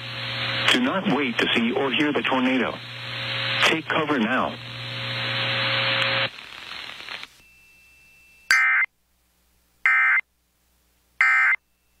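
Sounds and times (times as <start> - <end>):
radio static: 0.0 - 7.4.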